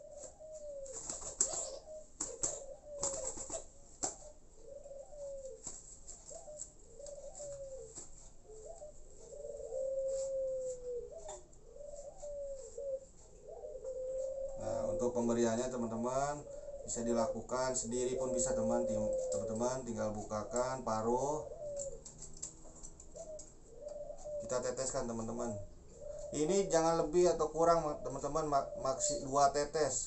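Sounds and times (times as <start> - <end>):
dove cooing: 0.0 - 30.0
rustling and clicks from handling: 21.8 - 23.6.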